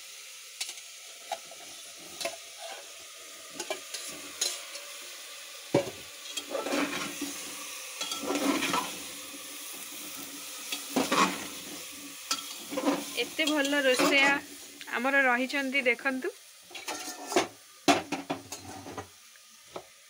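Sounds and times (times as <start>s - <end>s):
oil sizzling: 0.0s - 20.0s
ladle scraping a metal pan: 1.3s - 4.8s, 6.2s - 14.4s, 16.7s - 19.1s.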